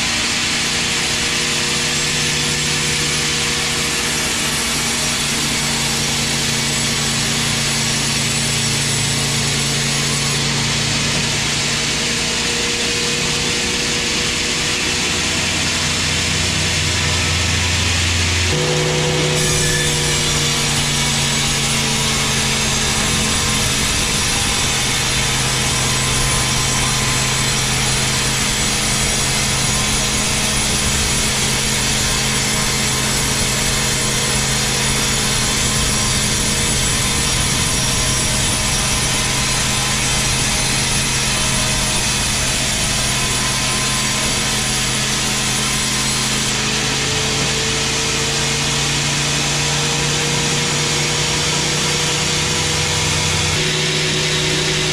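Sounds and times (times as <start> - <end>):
band saw cutting log: 0.0 - 54.9.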